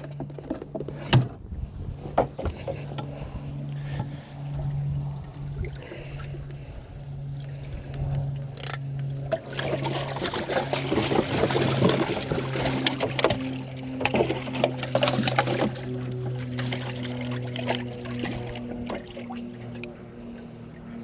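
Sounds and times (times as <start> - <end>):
low pump hum: 0.0 - 21.0
water pouring and splashing: 9.2 - 19.9.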